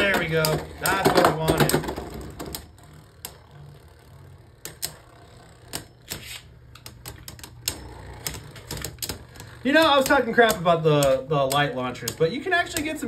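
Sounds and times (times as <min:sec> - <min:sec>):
spinning tops clacking together: 0:04.5 - 0:13.0.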